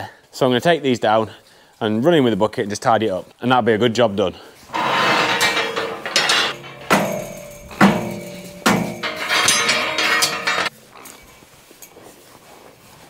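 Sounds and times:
metal hurdles clanging: 0:04.7 - 0:11.4.

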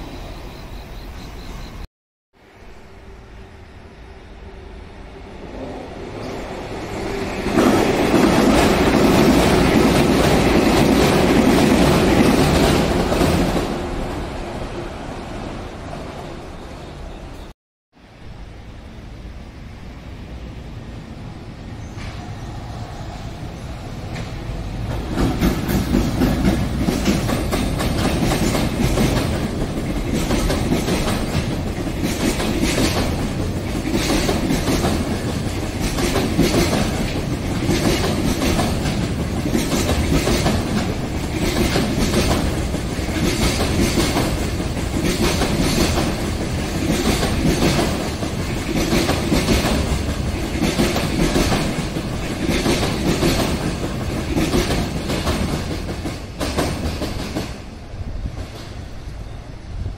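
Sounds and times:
train wheels clattering over rail joints: 0:24.1 - 0:57.6.

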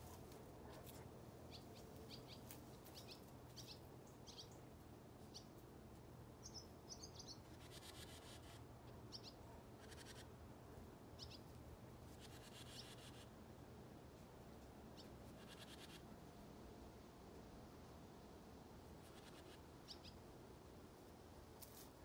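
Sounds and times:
birds chirping: 0:06.4 - 0:07.7.

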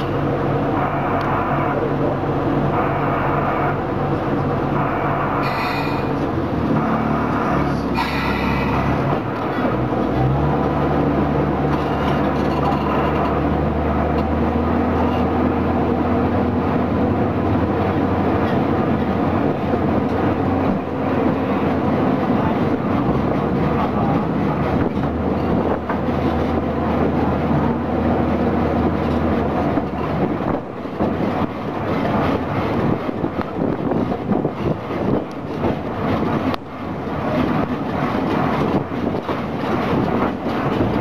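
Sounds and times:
diesel locomotive engine running: 0:00.0 - 0:41.0
wheels rumbling over rails: 0:00.0 - 0:41.0.

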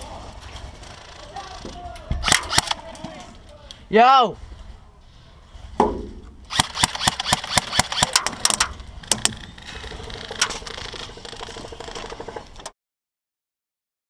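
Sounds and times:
airsoft gunfire snaps: 0:06.5 - 0:08.4.

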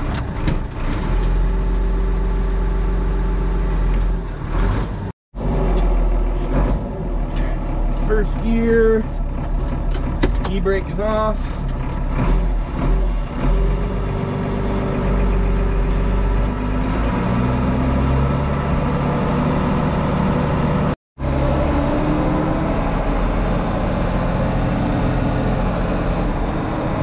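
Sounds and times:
tractor engine running: 0:00.0 - 0:27.0.

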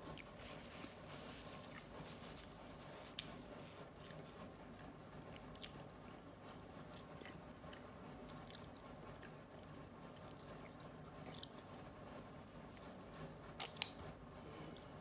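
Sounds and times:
man chewing: 0:00.0 - 0:11.7.

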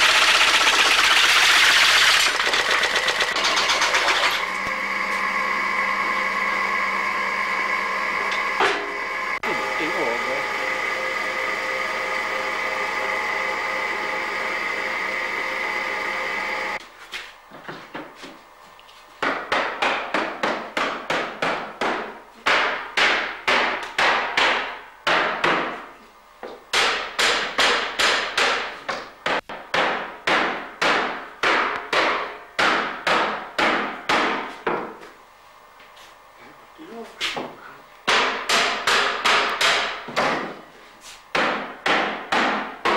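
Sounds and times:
workshop machine running: 0:00.0 - 0:42.9
hammer striking wooden barrel: 0:19.2 - 0:25.8, 0:26.7 - 0:35.0, 0:38.1 - 0:40.6, 0:41.3 - 0:42.9.

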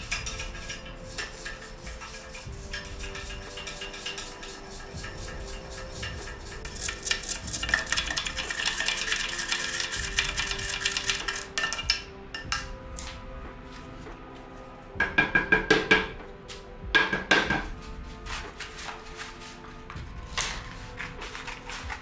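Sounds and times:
brush scrubbing inside metal vase: 0:00.0 - 0:12.5, 0:17.7 - 0:22.0.

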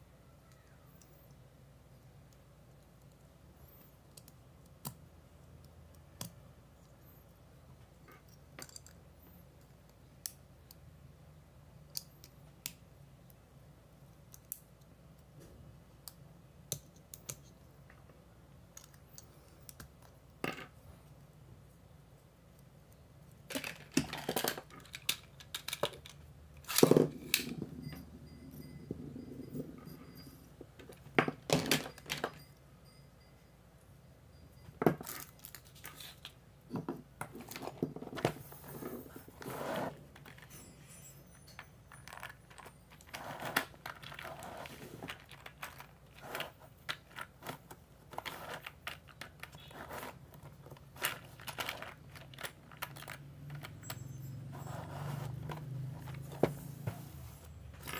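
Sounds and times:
plastic parts clicking on desk: 0:23.5 - 0:27.6.

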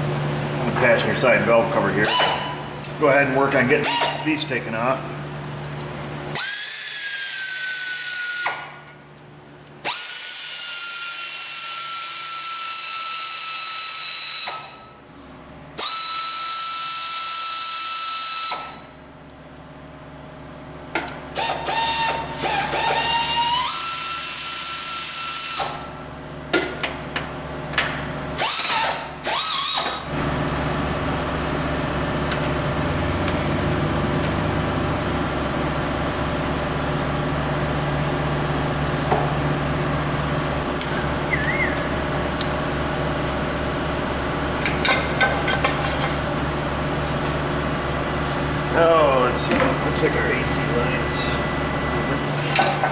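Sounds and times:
steady low hum: 0:00.0 - 0:06.4, 0:29.9 - 0:52.9
electric ratchet whining: 0:06.3 - 0:08.6, 0:09.8 - 0:14.7, 0:15.8 - 0:18.8, 0:21.3 - 0:25.8, 0:28.4 - 0:30.0.

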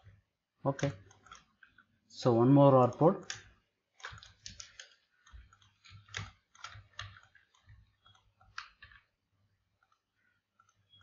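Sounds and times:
computer mouse clicking: 0:00.0 - 0:01.9, 0:02.8 - 0:11.0.

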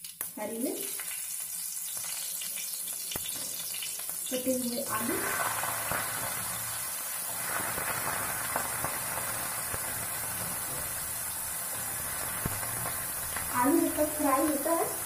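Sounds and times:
potatoes sizzling in hot fat: 0:00.0 - 0:15.0.

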